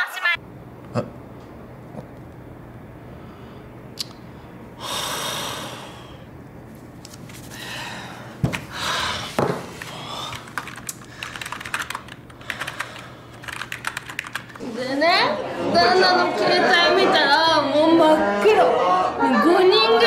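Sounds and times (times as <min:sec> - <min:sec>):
man breathing out heavily: 0:04.8 - 0:06.3
typing on a keyboard: 0:10.3 - 0:14.6.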